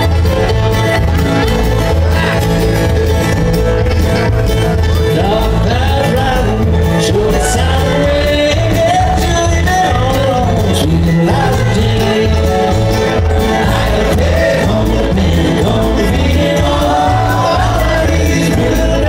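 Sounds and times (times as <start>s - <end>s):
bluegrass band playing: 0.0s - 19.0s
person singing: 4.8s - 19.0s.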